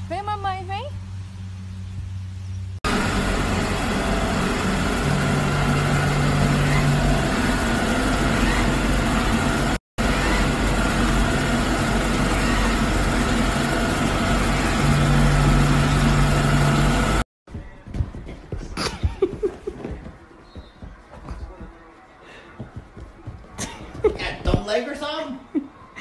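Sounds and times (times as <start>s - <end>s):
deeper hum: 2.0s - 17.3s.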